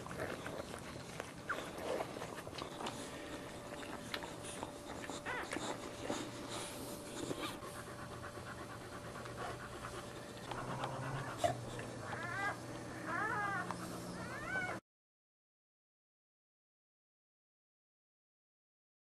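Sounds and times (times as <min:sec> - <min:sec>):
dog panting: 0:00.0 - 0:14.7
dog whimpering: 0:00.0 - 0:14.8.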